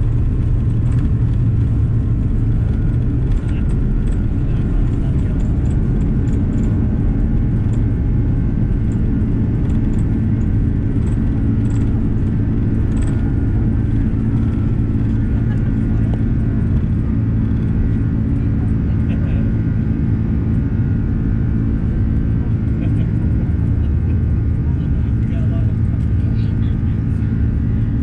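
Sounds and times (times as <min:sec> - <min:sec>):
light cabin rattles: 0:00.0 - 0:19.3
jet engines low rumble: 0:00.0 - 0:28.0.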